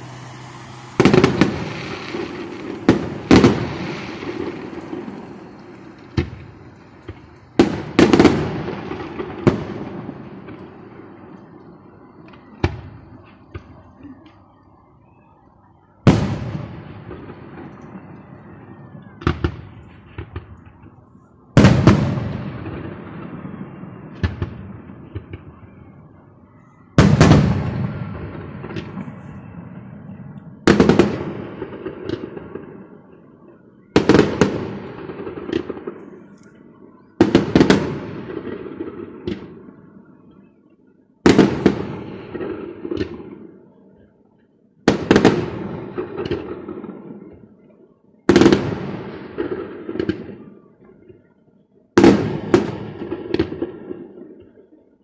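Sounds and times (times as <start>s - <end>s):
firework shells bursting: 0.0s - 9.6s
firework crackling: 0.0s - 14.0s, 41.3s - 43.4s.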